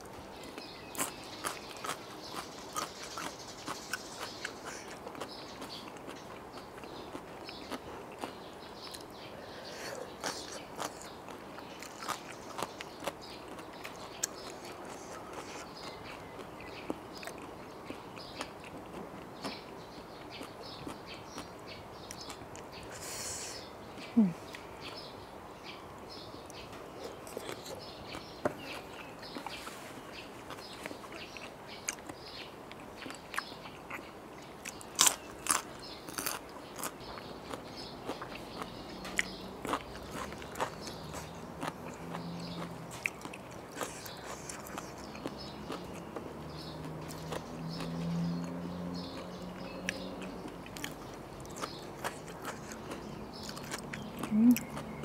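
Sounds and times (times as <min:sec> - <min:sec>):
crunching raw vegetables: 0:00.0 - 0:09.3, 0:09.9 - 0:23.1, 0:26.5 - 0:55.0
wet mouth sounds: 0:50.7 - 0:54.9.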